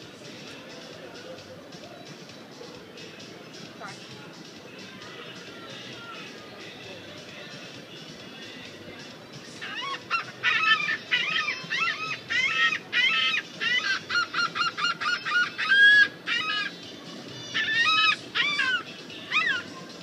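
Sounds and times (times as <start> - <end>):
seagulls squawking: 9.6 - 20.0.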